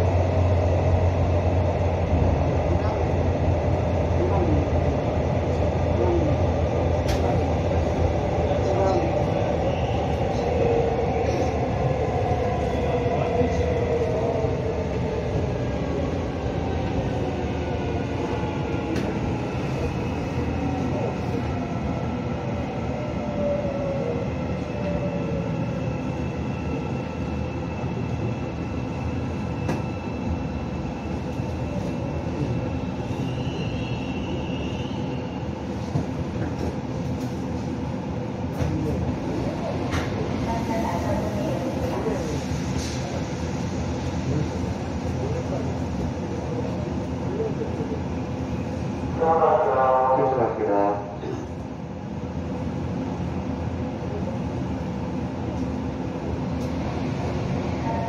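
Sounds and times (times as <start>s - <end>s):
electric train running rumble: 0.0s - 58.0s.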